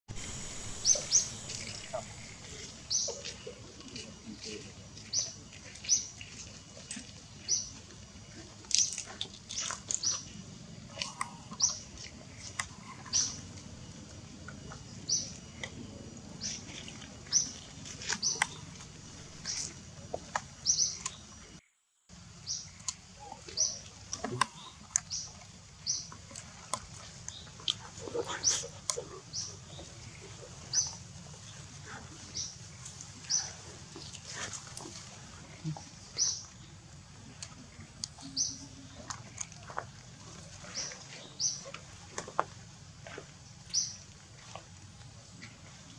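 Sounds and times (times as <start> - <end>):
high-pitched chirping calls: 0.1 - 6.5
steady low background noise: 0.1 - 45.9.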